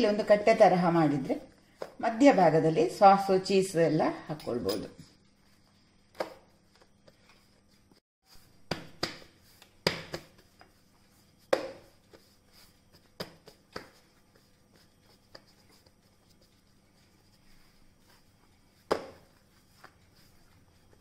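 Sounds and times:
hands patting dough: 5.4s - 21.0s.

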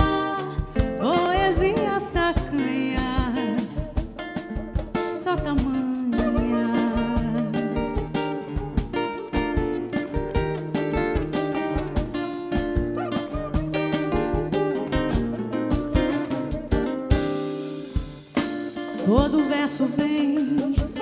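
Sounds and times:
woman singing: 0.0s - 4.1s, 5.0s - 8.8s, 18.8s - 21.0s
hand drum strokes: 0.0s - 21.0s
strummed acoustic guitar: 0.0s - 21.0s.

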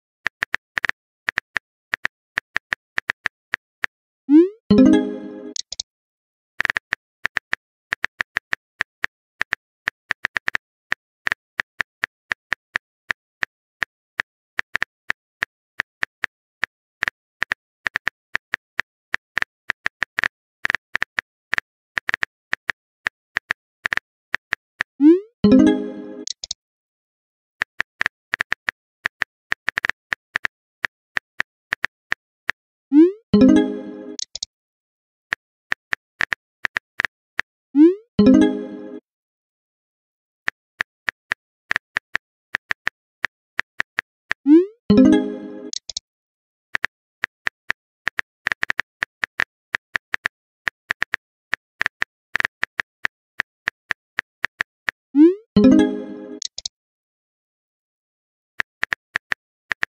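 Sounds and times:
phone keyboard typing clicks: 4.7s - 5.8s, 25.4s - 26.6s, 33.4s - 34.5s, 44.9s - 46.0s, 55.6s - 56.7s.

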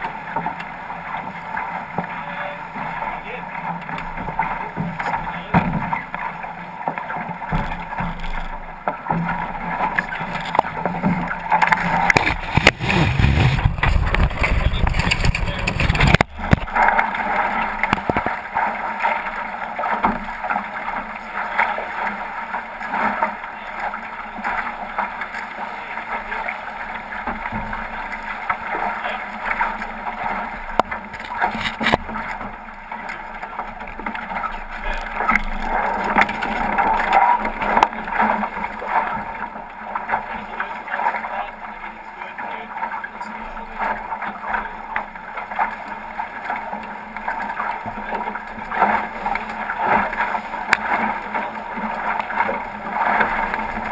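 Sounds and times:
water splashing along hull: 0.0s - 53.9s
rigging knocks and rattles: 10.3s - 16.8s.

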